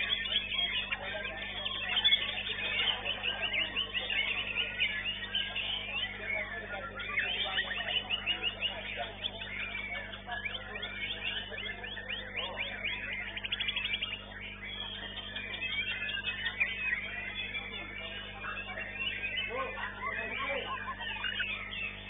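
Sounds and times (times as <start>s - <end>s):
bird singing whistled phrases: 0.0s - 22.0s
steady electrical hum: 0.0s - 22.0s.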